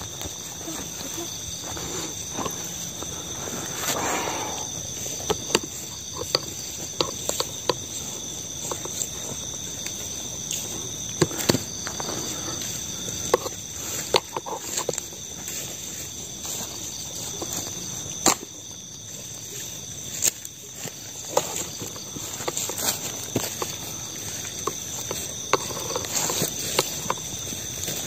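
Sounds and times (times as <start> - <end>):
crickets trilling: 0.0 - 28.0
clicks and snaps in undergrowth: 4.6 - 28.0.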